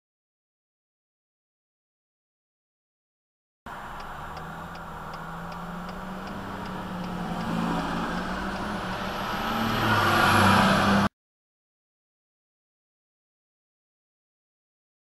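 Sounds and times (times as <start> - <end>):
fire truck engine passing: 3.7 - 11.1.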